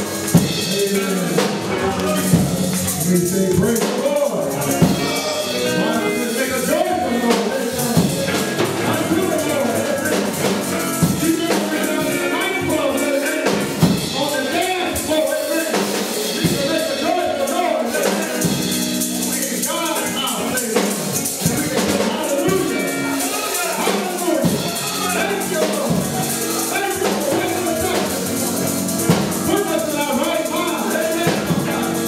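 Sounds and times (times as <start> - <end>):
drum kit: 0.0 - 32.0
guitar: 0.0 - 32.0
keyboard: 0.0 - 32.0
voices singing: 0.0 - 32.0.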